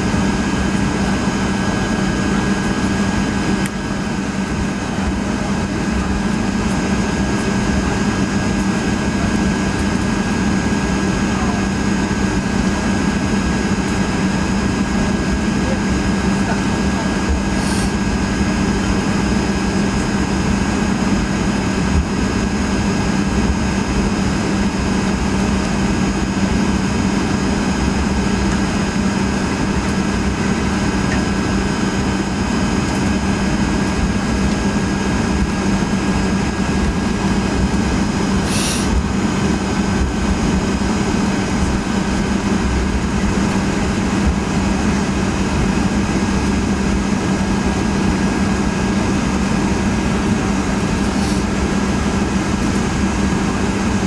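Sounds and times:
airplane cabin engine hum: 0.0s - 54.0s
faint high engine whines: 0.0s - 54.0s
brief hiss: 38.4s - 38.9s, 51.0s - 51.4s.

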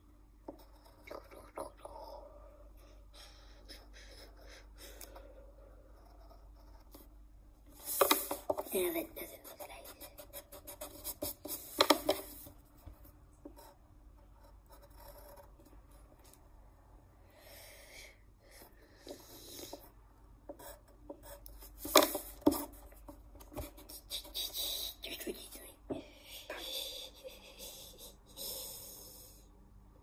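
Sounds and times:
drawing tool scratching on paper: 5.8s - 7.1s, 7.8s - 12.5s, 13.4s - 16.1s, 18.5s - 24.9s.

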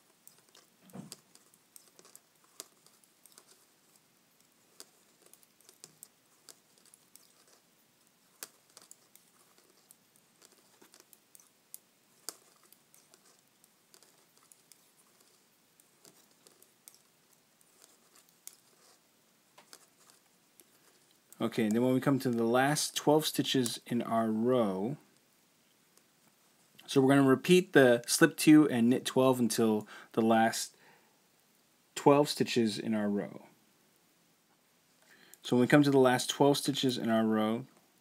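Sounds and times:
metal knitting needles clicking: 0.0s - 19.0s.

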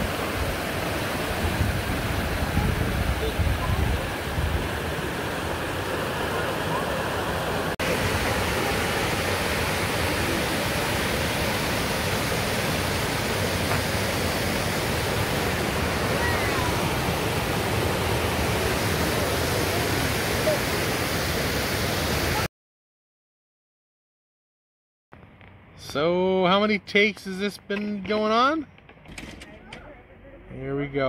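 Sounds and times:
creek rushing over rocks: 0.0s - 22.5s.

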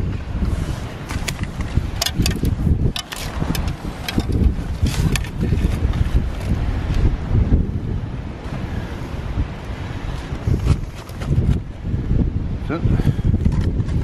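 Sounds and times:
wind buffeting microphone: 0.0s - 14.0s
handling clicks and rustles: 1.0s - 6.6s.

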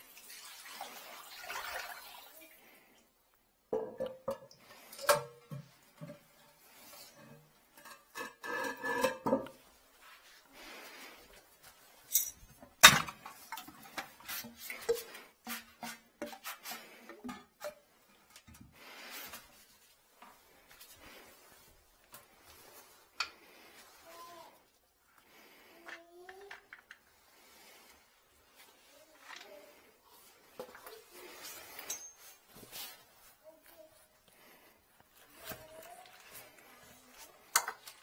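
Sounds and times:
ceramic toilet clinking: 3.7s - 6.2s, 7.7s - 9.6s
ceramic scraping against tile: 6.8s - 9.6s.

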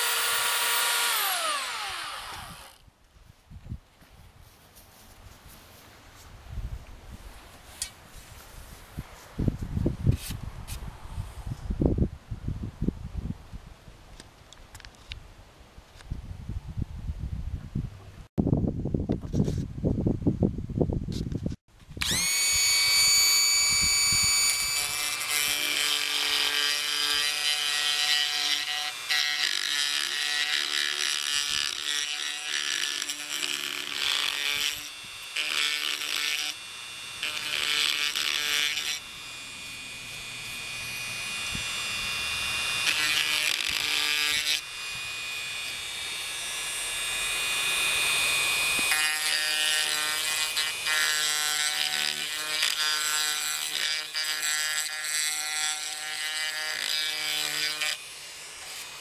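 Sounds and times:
carving bit grinding filler: 0.0s - 2.8s, 22.0s - 59.0s
rotary tool motor whining: 0.0s - 2.8s, 22.0s - 59.0s.

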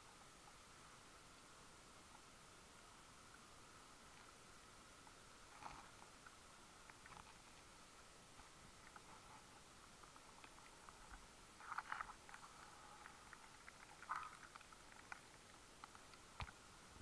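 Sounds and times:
low hiss: 0.0s - 17.0s
underwater clicks and crackles: 5.0s - 16.7s.

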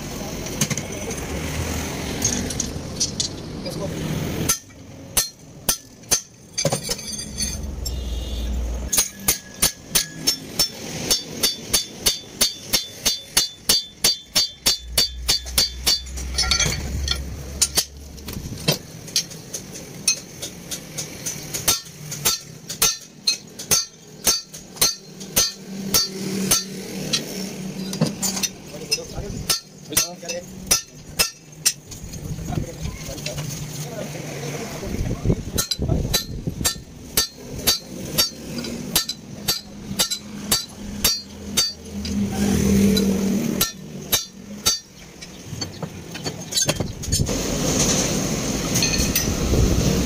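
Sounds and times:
hammer striking steel on anvil: 4.4s - 8.0s, 8.8s - 31.9s, 35.5s - 42.2s, 42.8s - 47.3s.

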